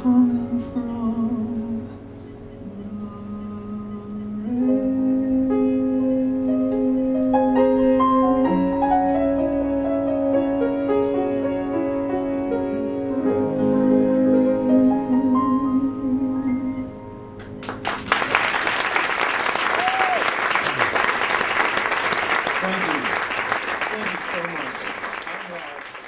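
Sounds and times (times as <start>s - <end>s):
slow piano ballad: 0.0s - 17.9s.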